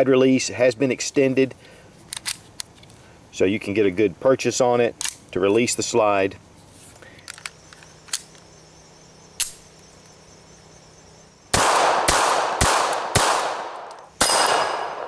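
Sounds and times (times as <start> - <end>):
pistol shots echoing: 11.5 - 15.0.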